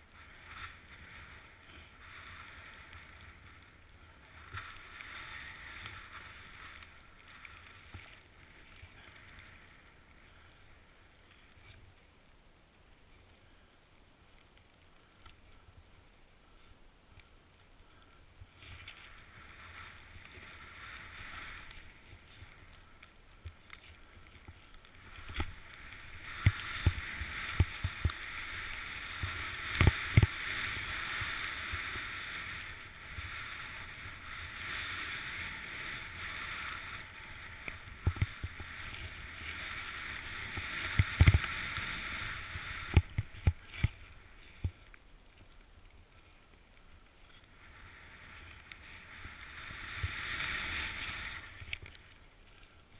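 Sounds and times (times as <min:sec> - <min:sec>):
snowboard swishing through snow: 0:00.0 - 0:10.3, 0:18.5 - 0:22.8, 0:24.1 - 0:44.6, 0:47.6 - 0:51.6.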